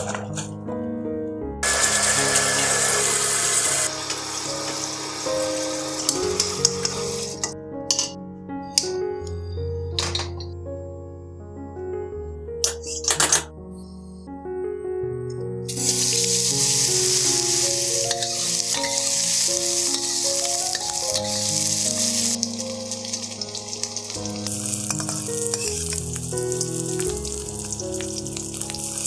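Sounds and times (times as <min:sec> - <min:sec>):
background music: 0:00.0 - 0:29.0
meat sizzling in hot oil: 0:01.6 - 0:07.5, 0:15.7 - 0:29.0
metal spatula scraping wok: 0:15.8 - 0:22.4.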